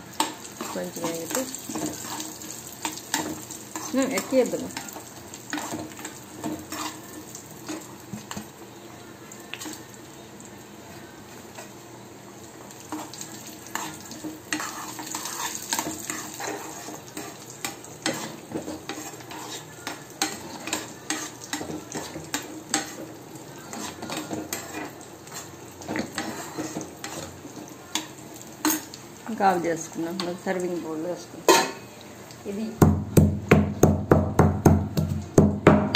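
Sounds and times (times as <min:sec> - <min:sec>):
spoon stirring in pan: 0:00.0 - 0:08.6, 0:10.9 - 0:30.8, 0:31.4 - 0:32.4
nuts sizzling in fat: 0:00.0 - 0:33.0
ladle clinking and scraping pot: 0:12.9 - 0:27.4, 0:31.5 - 0:31.9.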